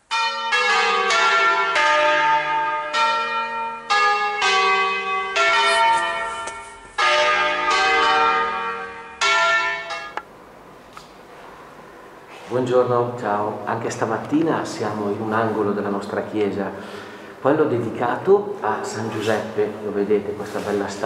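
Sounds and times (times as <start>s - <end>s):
church bells ringing: 0.0s - 10.2s.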